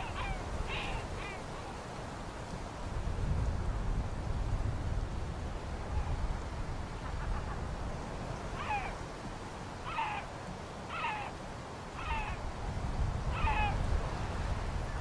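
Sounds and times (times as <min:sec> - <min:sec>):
animal mewing calls: 0:00.0 - 0:01.4, 0:08.6 - 0:08.9, 0:09.8 - 0:10.3, 0:10.9 - 0:11.3, 0:12.0 - 0:12.4, 0:13.3 - 0:13.8.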